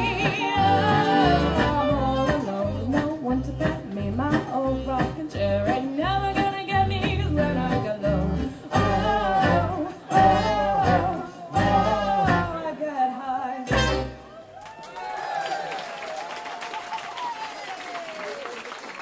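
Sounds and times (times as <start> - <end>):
swing band playing: 0.0 - 12.8, 13.6 - 14.4
woman singing: 0.0 - 14.1
man singing: 7.8 - 14.0.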